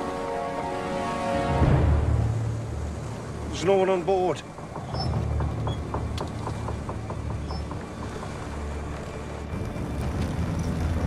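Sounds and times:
wooden timbers creaking: 4.3s - 11.0s.

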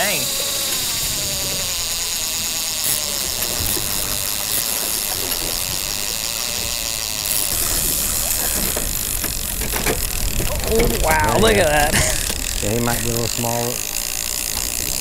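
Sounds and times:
outboard motor idling: 0.0s - 15.0s
water noise: 0.0s - 15.0s
wind: 0.0s - 15.0s
faint clicks and rattles: 0.4s - 15.0s.

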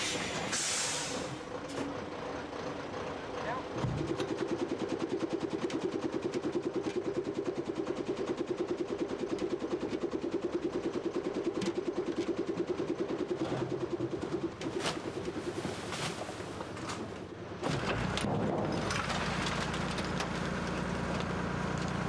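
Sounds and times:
diesel truck engine idling: 0.0s - 5.2s.

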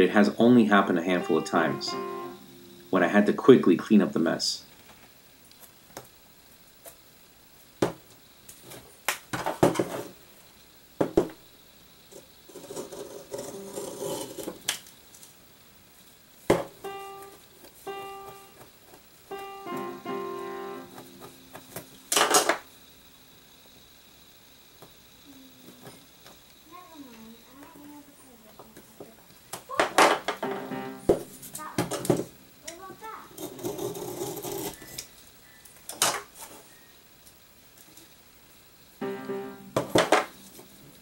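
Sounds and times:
short piano-like notes: 0.8s - 3.4s, 16.8s - 18.6s, 19.3s - 22.1s, 30.4s - 32.5s, 39.0s - 40.1s.

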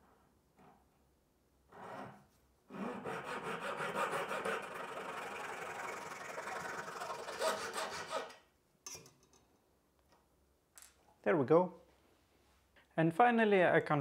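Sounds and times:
hand saw cutting wood: 2.7s - 8.4s.

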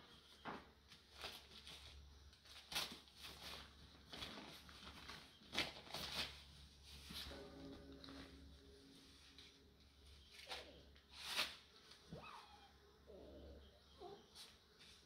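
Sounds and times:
newspaper rustling and crinkling: 0.3s - 8.4s.

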